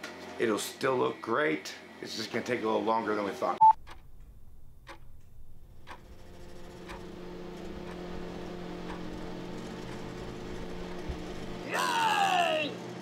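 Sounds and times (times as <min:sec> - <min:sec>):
clock ticking: 0:03.6 - 0:11.5
steady hum: 0:03.6 - 0:11.7.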